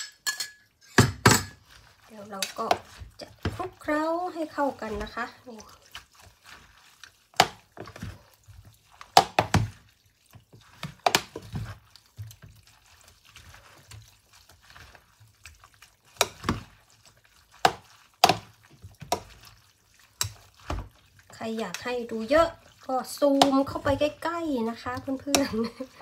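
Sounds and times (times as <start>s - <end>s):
plastic spoons clacking on bowl: 0.0s - 4.0s, 10.6s - 12.6s, 13.4s - 16.8s, 17.5s - 26.0s
wet stirring: 0.0s - 26.0s.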